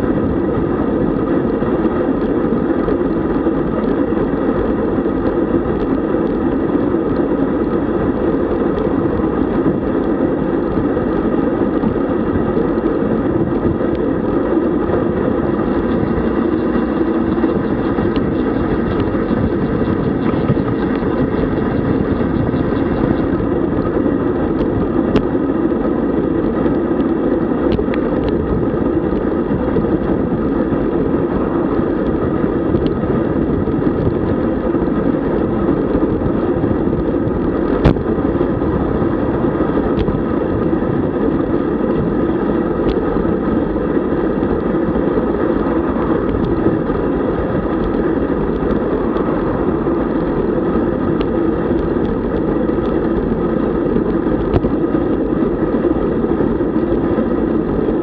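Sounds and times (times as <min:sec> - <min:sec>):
bicycle tyres on road: 0:00.0 - 0:58.0
wind: 0:00.0 - 0:58.0.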